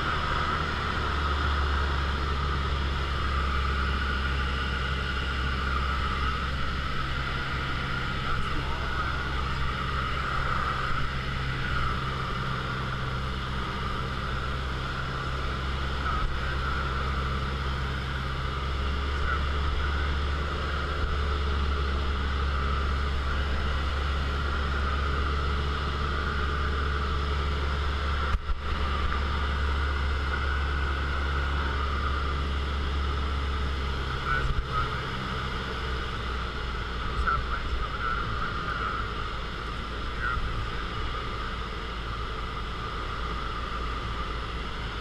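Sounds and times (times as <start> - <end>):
light aircraft engine droning: 0.0 - 45.0.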